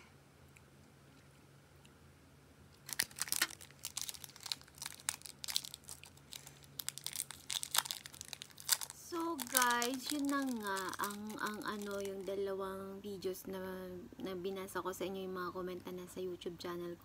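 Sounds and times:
faint room hum: 0.0 - 17.0
plastic wrapper crinkling and tearing: 2.8 - 12.5.

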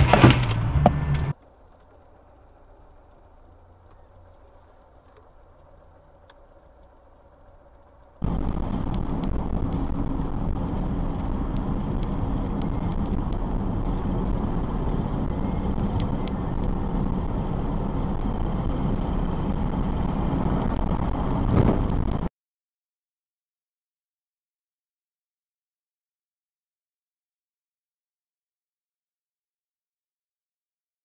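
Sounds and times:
car driving rumble from inside: 0.0 - 22.3.

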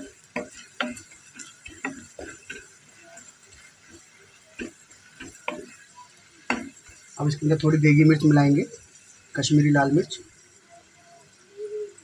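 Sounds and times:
wooden spoon scraping a pan: 0.0 - 9.4
oil sizzling: 0.0 - 12.0.

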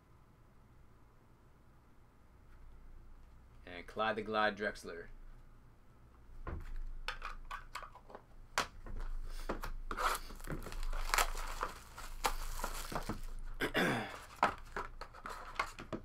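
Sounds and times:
plastic wrap crackling and tearing: 9.9 - 15.9.

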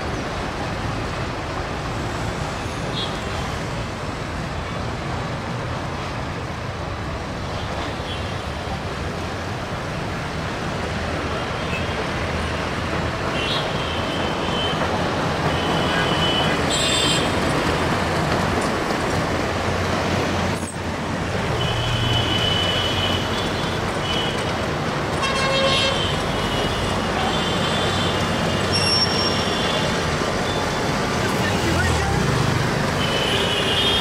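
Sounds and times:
dense road traffic: 0.0 - 34.0
vehicle horns beeping: 25.2 - 30.8, 33.0 - 34.0.

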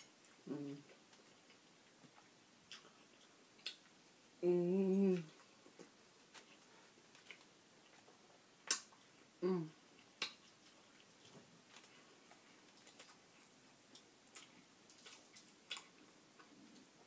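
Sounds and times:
woman humming while eating: 4.4 - 5.4, 9.4 - 9.8.

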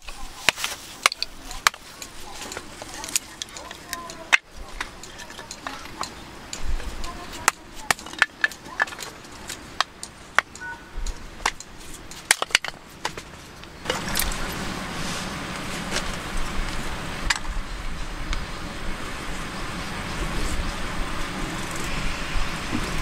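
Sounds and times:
hatchet splitting firewood: 0.0 - 14.5
steady rushing noise: 0.0 - 23.0.

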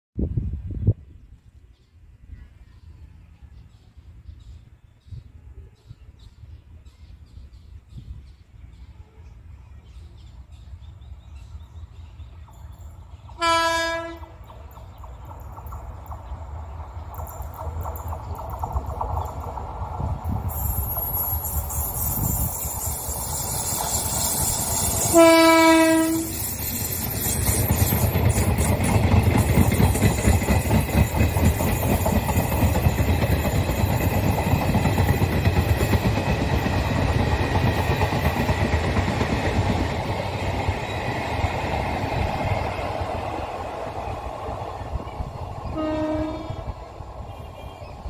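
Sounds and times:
train wheels rumbling on track: 6.3 - 48.0
train horn blast: 13.4 - 14.4, 25.1 - 26.4, 45.7 - 47.8.

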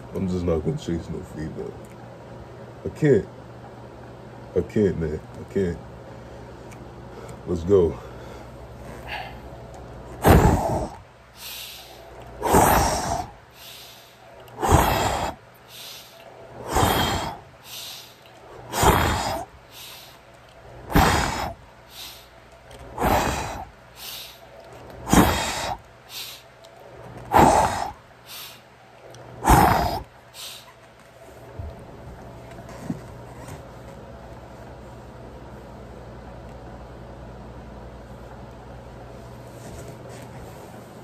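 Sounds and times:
soft breath in: 11.4 - 20.2.

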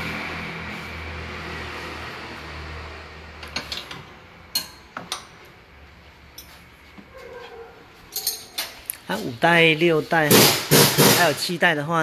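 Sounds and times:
metal tools clinking: 8.1 - 9.0.

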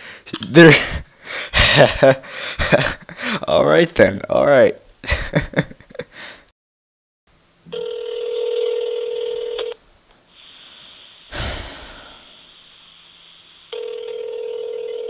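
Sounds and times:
telephone ringback tone: 7.7 - 9.8, 13.7 - 15.0
phone line hiss: 7.7 - 11.4, 12.0 - 15.0.

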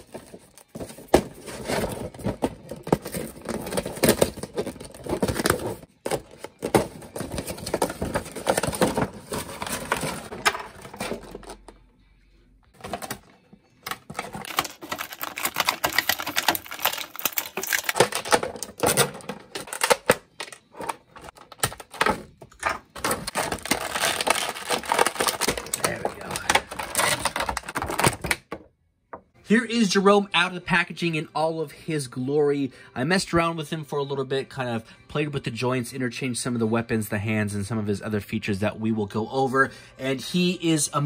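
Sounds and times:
plastic blister tray crinkling: 13.9 - 28.4.

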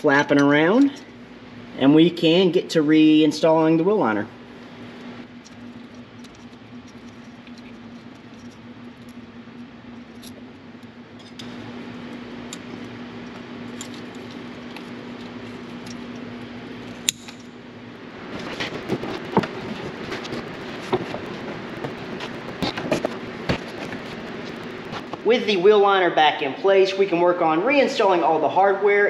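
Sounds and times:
steady hum: 0.0 - 29.0
ticks and rustling of cable ties: 4.8 - 17.5, 18.3 - 25.3.

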